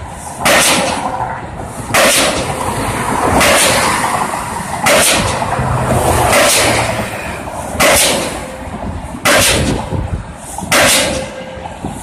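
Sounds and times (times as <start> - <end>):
pile-driving hammer bangs: 0.4 - 1.2, 1.9 - 2.5, 3.4 - 4.0, 4.8 - 5.4, 6.2 - 6.9, 7.8 - 8.5, 9.2 - 9.9, 10.7 - 11.6.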